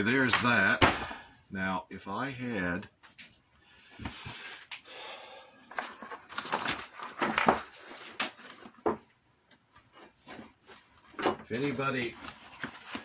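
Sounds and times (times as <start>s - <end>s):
rustling and handling noises: 5.6s - 13.0s.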